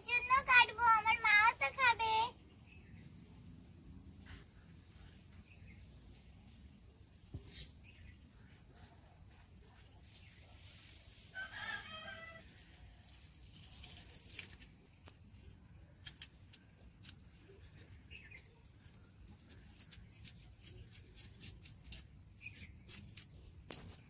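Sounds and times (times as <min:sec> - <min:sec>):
knife scoring a leaf: 0:16.0 - 0:24.0.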